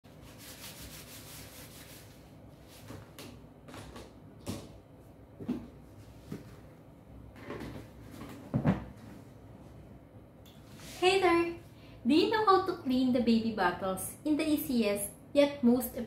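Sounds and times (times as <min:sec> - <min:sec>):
tissue rubbing plastic: 0:00.1 - 0:03.0.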